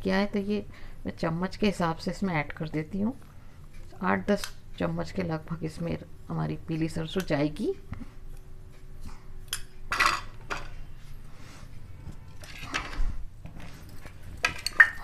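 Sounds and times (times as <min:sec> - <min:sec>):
steel bowls clinking on a plate: 0:14.4 - 0:15.0.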